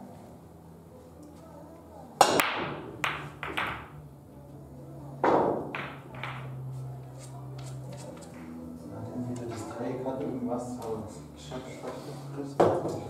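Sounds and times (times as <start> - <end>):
billiard balls clacking: 2.2 - 4.0, 5.2 - 6.6
cue ball cracking into racked balls: 2.2 - 4.0, 5.2 - 6.6.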